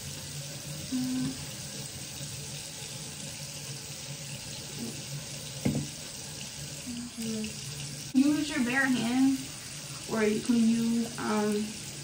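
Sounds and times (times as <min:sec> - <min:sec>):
sink tap running: 0:00.0 - 0:12.0
brief knock: 0:05.6 - 0:05.9.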